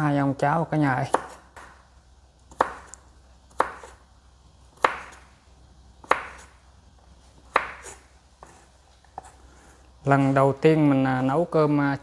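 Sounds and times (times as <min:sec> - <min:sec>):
knife chopping on wooden board: 0:01.1 - 0:01.8, 0:02.5 - 0:02.9, 0:03.5 - 0:04.0, 0:04.8 - 0:05.3, 0:06.0 - 0:06.6, 0:07.4 - 0:09.4.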